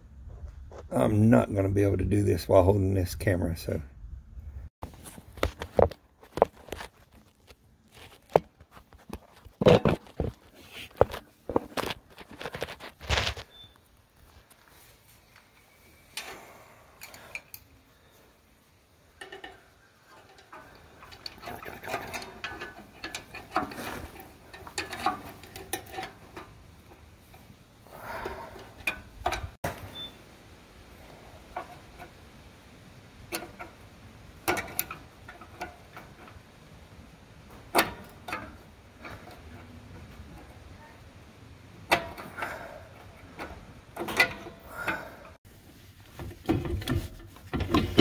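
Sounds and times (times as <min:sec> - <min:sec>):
metallic clicks and scraping: 0:04.9 - 0:18.1, 0:19.1 - 0:30.1, 0:33.2 - 0:40.8, 0:41.7 - 0:45.4.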